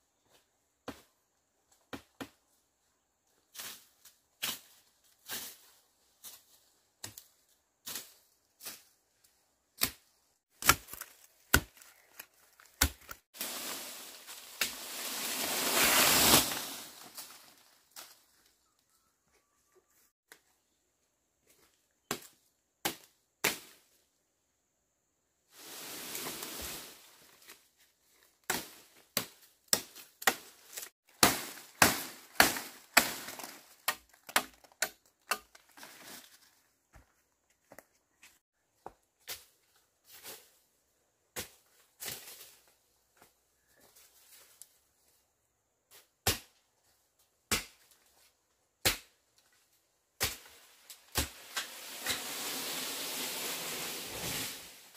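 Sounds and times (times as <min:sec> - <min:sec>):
leafy rustle: 0:13.2 - 0:18.4, 0:25.5 - 0:27.8, 0:50.4 - 0:54.9
machete chopping plant stems: 0:28.5 - 0:35.6, 0:46.2 - 0:46.5, 0:47.5 - 0:47.9, 0:48.8 - 0:49.2, 0:50.2 - 0:52.4.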